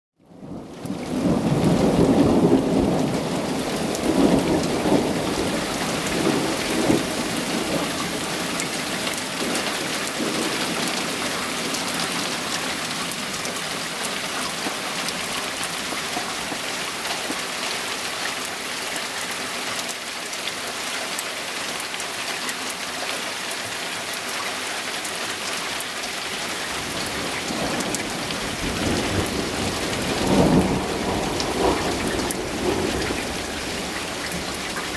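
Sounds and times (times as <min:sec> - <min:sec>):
steady rain falling: 0:00.2 - 0:34.9
rolling thunder rumbling: 0:00.4 - 0:17.4, 0:26.8 - 0:34.9.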